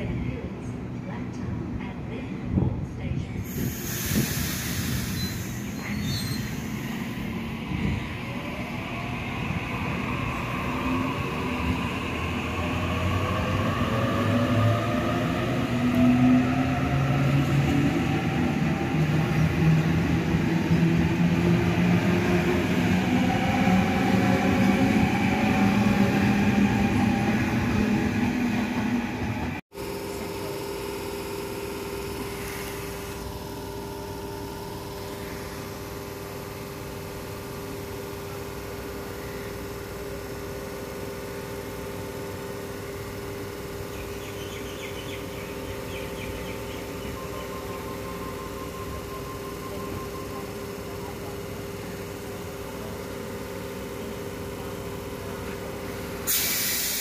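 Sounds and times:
train electrical hum: 0:00.0 - 0:57.0
electric train motor whine: 0:46.3 - 0:56.2.

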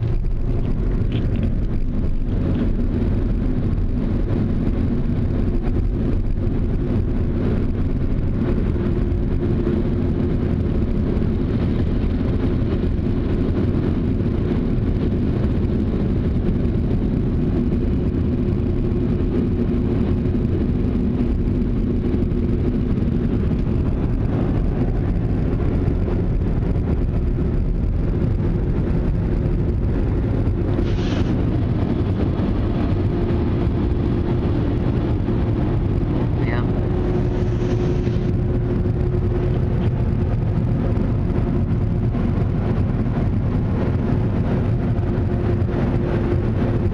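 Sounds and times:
car wash machine rumble and hum: 0:00.0 - 0:46.9
short hiss: 0:30.8 - 0:31.3.

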